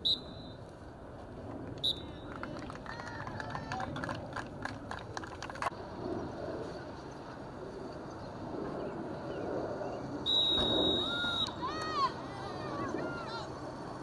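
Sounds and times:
distant voices: 1.4 - 14.0.

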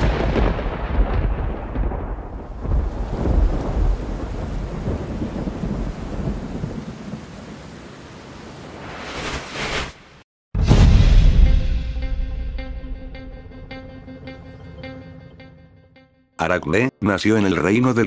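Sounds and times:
thunder clap and rumble: 0.0 - 7.8
rain-like hiss: 2.6 - 10.2.

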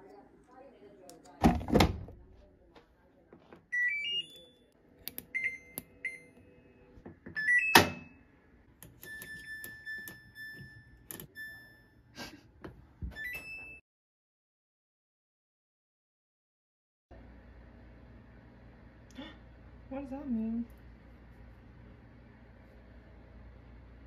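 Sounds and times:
electronic beeps: 3.7 - 6.7.

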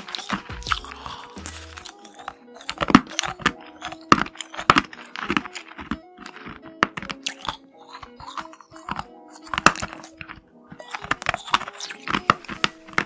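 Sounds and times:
background music with held notes: 0.0 - 13.0
crunching and chewing candies: 0.0 - 13.0.

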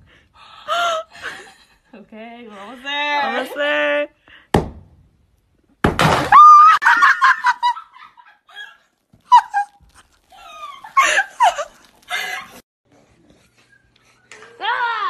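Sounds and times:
cries and yells: 14.3 - 15.0.

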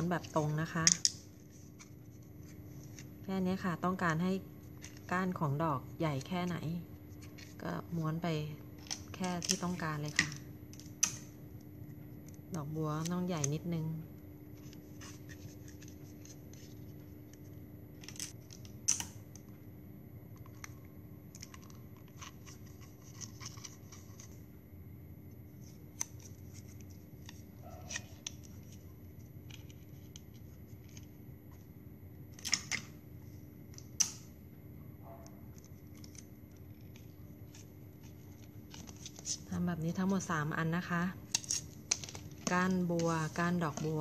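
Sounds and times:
faint hum: 0.0 - 44.0
plastic crinkling: 35.5 - 39.5, 41.2 - 44.0.

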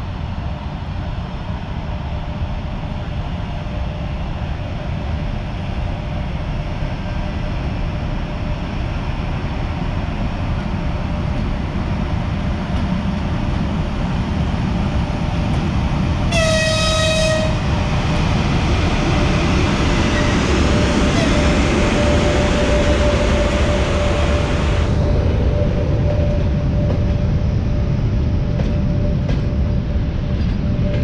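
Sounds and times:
electric locomotive rumble: 0.0 - 31.0
locomotive horn blast: 16.3 - 17.7, 21.1 - 21.6.

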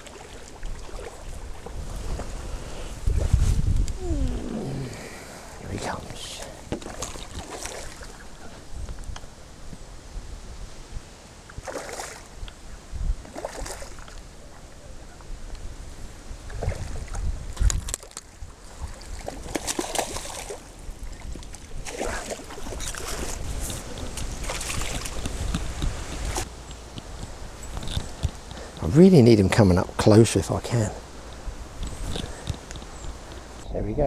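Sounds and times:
water lapping: 0.0 - 3.1, 4.0 - 8.7, 11.5 - 12.4, 13.2 - 14.8, 16.4 - 26.5
wind buffeting microphone: 0.0 - 30.0, 31.0 - 34.0.

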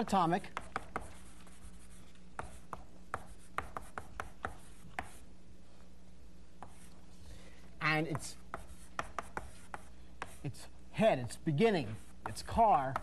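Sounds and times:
chalk tapping and scraping on blackboard: 0.0 - 5.3, 6.6 - 7.0, 8.0 - 10.6, 11.7 - 13.0.

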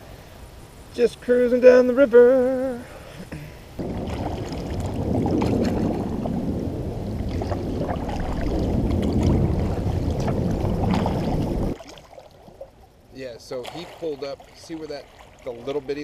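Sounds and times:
steady low rumble: 2.3 - 11.8
paddle splashing in water: 3.8 - 12.9, 13.5 - 16.0.

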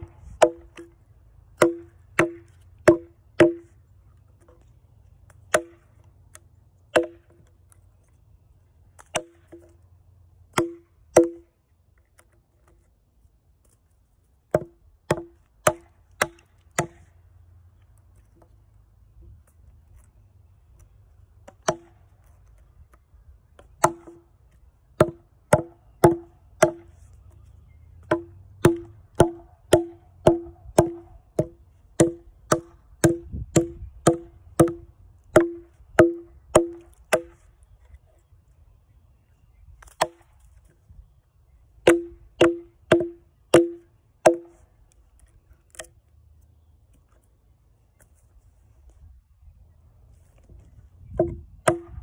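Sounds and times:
hammer striking log: 0.0 - 1.0, 1.6 - 3.7, 5.5 - 5.9, 6.9 - 7.5, 9.0 - 9.8, 10.5 - 11.5, 14.5 - 17.1, 21.4 - 22.0, 23.6 - 24.2, 25.0 - 26.9, 28.0 - 37.4, 39.8 - 40.3, 41.8 - 44.6, 51.1 - 52.0.

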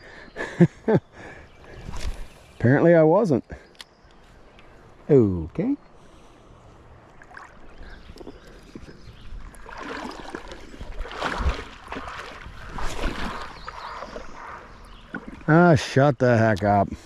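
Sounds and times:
river water splashing around legs: 6.8 - 15.6.

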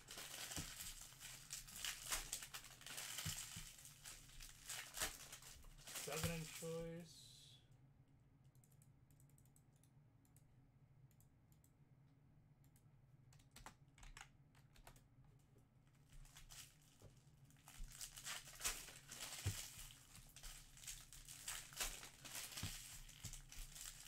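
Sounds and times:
typing on computer keyboard: 13.3 - 15.0.

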